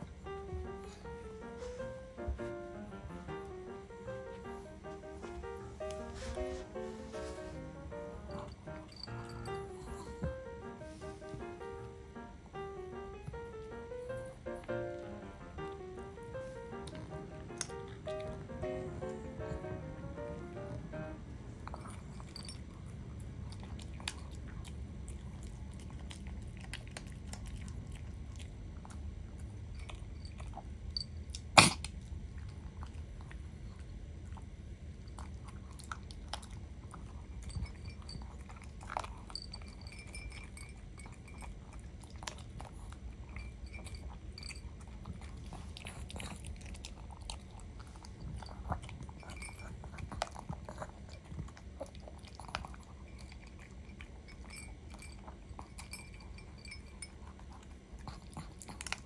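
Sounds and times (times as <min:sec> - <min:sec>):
dog chewing dry kibble: 0:14.6 - 0:19.0, 0:21.6 - 0:59.0.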